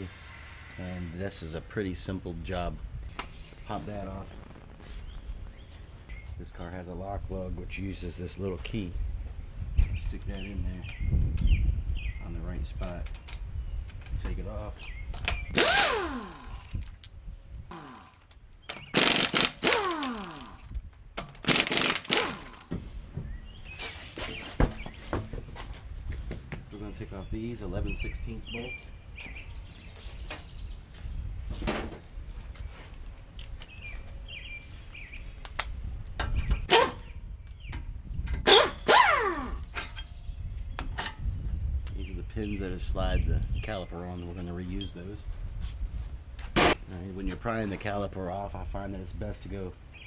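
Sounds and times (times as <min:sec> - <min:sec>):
air motor whine: 0:00.0 - 0:06.3, 0:14.9 - 0:16.9
impact wrench rattling: 0:18.8 - 0:22.7.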